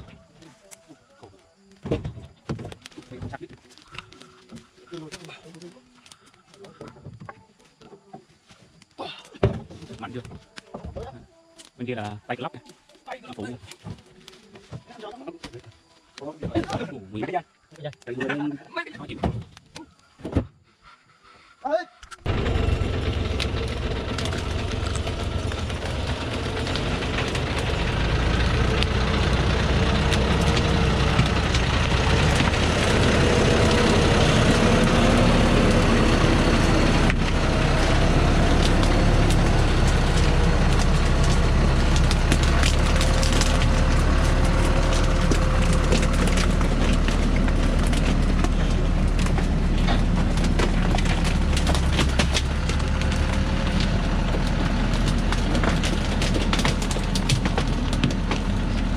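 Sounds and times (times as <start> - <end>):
twigs cracking under tyres: 0.0 - 16.8, 22.1 - 58.9
diesel truck engine under load: 22.2 - 58.9.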